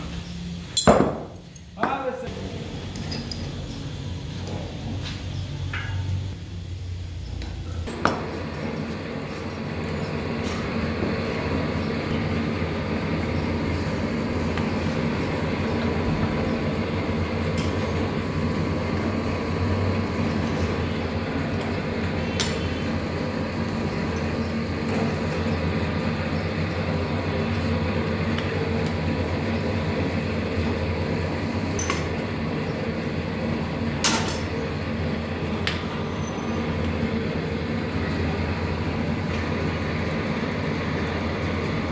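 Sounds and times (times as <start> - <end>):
steady machine hum: 0.0 - 41.9.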